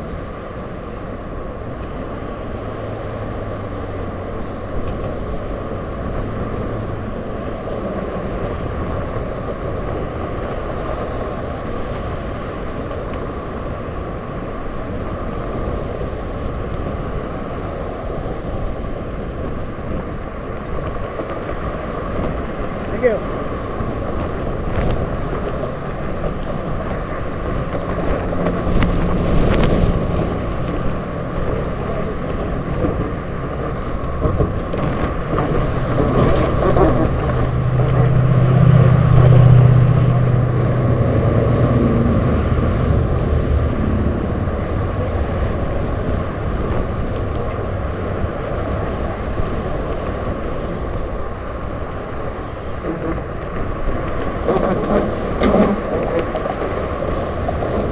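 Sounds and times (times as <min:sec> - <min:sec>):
road traffic passing: 0:00.0 - 0:57.9
wind on microphone: 0:00.0 - 0:57.9
low hum: 0:23.6 - 0:57.9.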